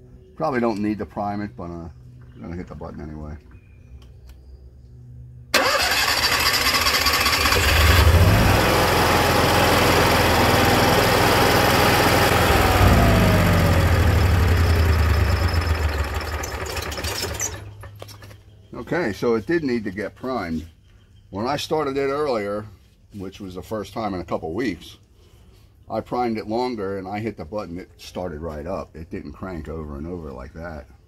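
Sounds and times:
electric starter cranking: 0:05.6 - 0:18.0
generator engine running: 0:05.6 - 0:18.0.

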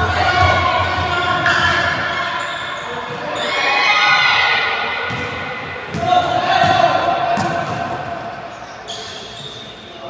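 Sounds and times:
players' sounds echoing: 0:00.0 - 0:10.0.

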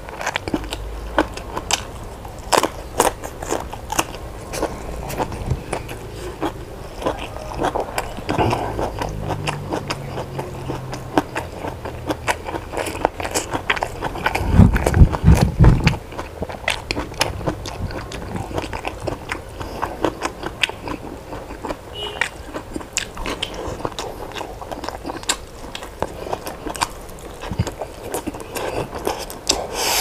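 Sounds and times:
person chewing crunchy food: 0:00.0 - 0:30.0
low thumps: 0:03.9 - 0:07.0.

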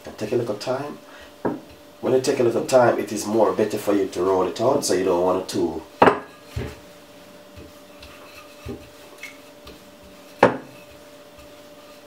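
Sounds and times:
rolling pin rolling dough: 0:00.0 - 0:12.0
rolling pin knocking: 0:01.4 - 0:01.8, 0:10.4 - 0:10.8.

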